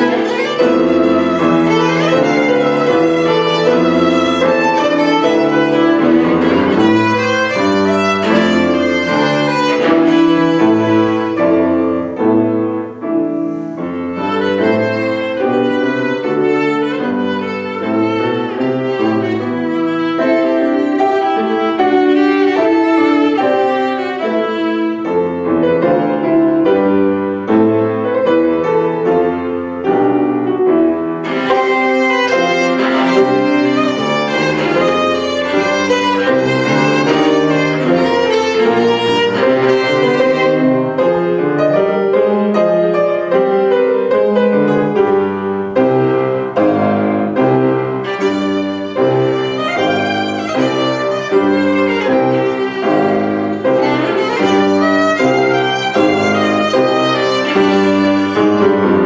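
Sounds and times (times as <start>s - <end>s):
bowed violin: 0.0s - 59.0s
grand piano: 0.0s - 59.0s.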